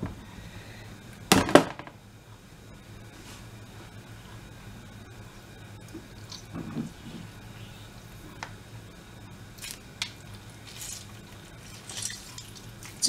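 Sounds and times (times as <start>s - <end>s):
steady low hum: 0.0s - 13.0s
lemon squelch: 9.6s - 13.0s.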